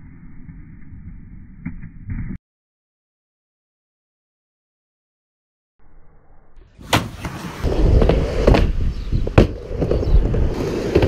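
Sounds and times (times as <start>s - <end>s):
skateboard wheels rumbling on ramp: 6.8s - 11.0s.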